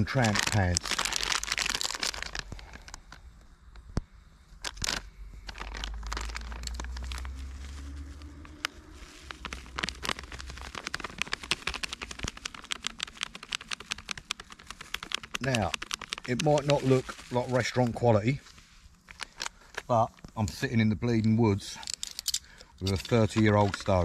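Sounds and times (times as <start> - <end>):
plastic packet crinkling: 0.0 - 3.9, 4.6 - 20.7, 21.6 - 24.0
low steady rumble: 0.0 - 12.0.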